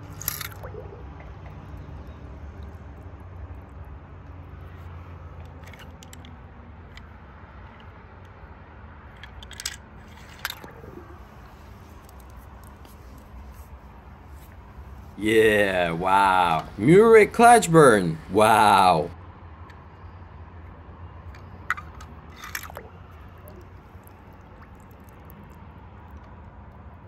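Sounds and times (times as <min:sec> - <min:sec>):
toy car clicks: 0:00.1 - 0:00.6, 0:05.4 - 0:07.1, 0:09.2 - 0:10.7, 0:21.4 - 0:22.8
squishy water splashes: 0:22.4 - 0:25.7.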